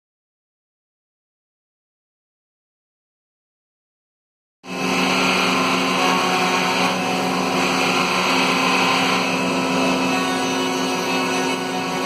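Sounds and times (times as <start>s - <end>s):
router cutting plywood: 4.7s - 12.0s.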